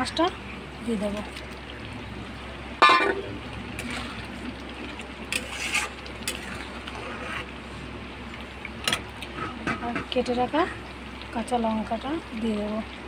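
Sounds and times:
spatula scraping a steel pan: 5.3s - 5.9s.

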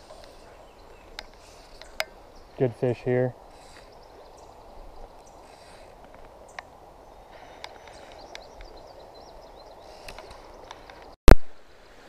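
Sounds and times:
birds chirping: 0.0s - 11.2s
fly line ticking: 1.0s - 2.6s.

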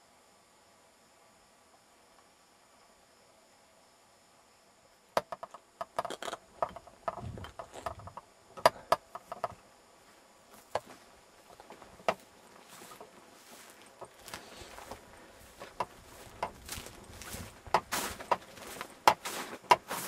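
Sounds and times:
handling clicks and knocks: 5.2s - 9.6s, 11.5s - 12.3s, 14.8s - 19.9s.

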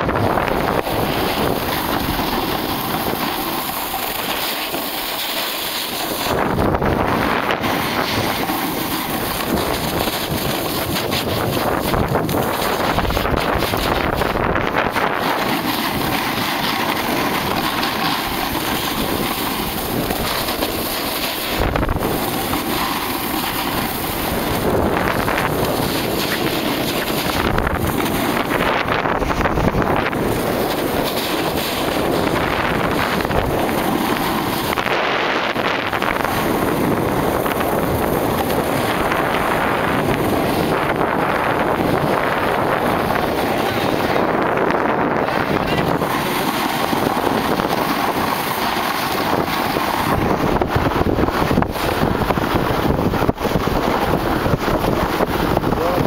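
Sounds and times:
snowboard sliding on snow: 0.0s - 56.0s
wind on microphone: 0.0s - 56.0s.

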